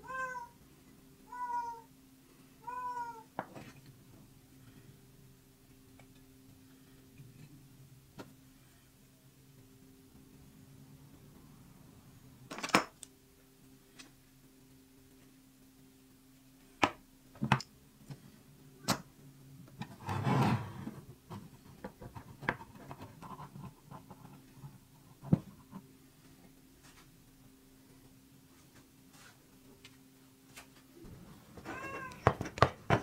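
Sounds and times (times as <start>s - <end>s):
faint steady hum: 0.0s - 33.0s
scraping rub: 19.9s - 21.5s.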